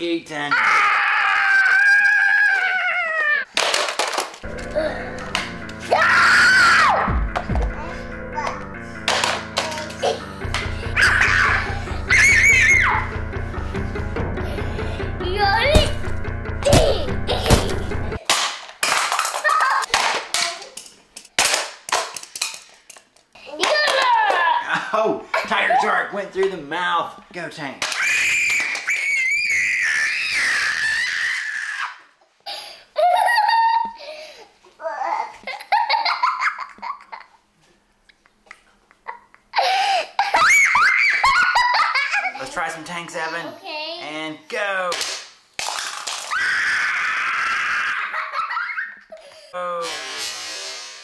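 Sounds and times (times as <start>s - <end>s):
background music: 4.4s - 18.2s
plastic toy clacks and knocks: 9.1s - 10.7s, 18.3s - 24.1s
boy laughing: 19.4s - 19.9s, 23.5s - 26.0s, 32.5s - 34.2s, 35.3s - 37.4s, 38.1s - 42.6s, 47.1s - 49.9s.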